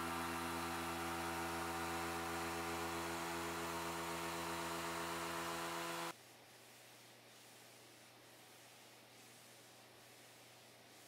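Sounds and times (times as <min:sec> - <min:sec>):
random orbital sander on wood: 0:00.0 - 0:06.1.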